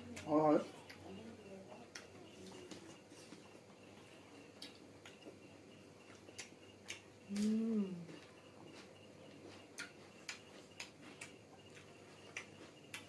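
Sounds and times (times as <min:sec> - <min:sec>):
chewing and lip-smacking: 0:01.8 - 0:03.6, 0:04.5 - 0:05.4, 0:06.0 - 0:13.0
person humming mmm: 0:07.3 - 0:08.2.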